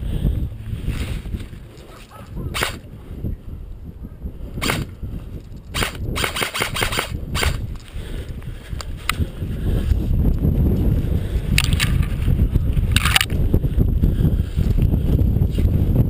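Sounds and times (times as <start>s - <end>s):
airsoft rifle shots: 2.2s - 2.9s, 4.6s - 4.9s, 5.7s - 7.7s.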